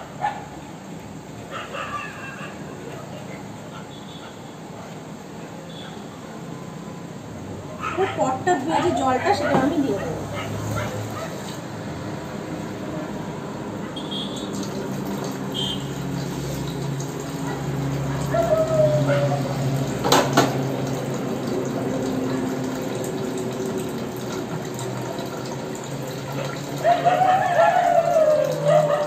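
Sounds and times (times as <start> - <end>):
steel pot being rinsed: 14.4 - 18.4, 19.7 - 29.0
tap running into sink: 19.9 - 26.7.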